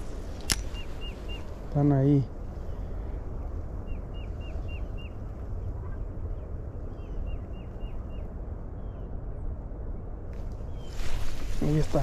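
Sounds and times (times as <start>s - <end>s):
bird chirping: 0.0s - 9.3s
wind rumble on microphone: 0.0s - 12.0s.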